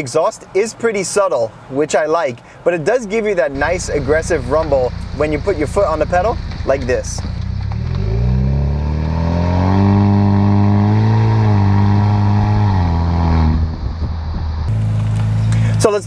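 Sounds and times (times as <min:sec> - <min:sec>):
car exhaust rumble accelerating: 0:03.5 - 0:16.0.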